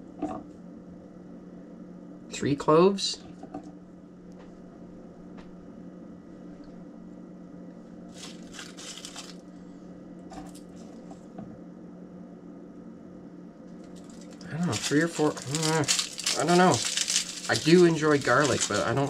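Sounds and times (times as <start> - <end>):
garlic skins crackling: 8.1 - 9.5, 13.9 - 19.0.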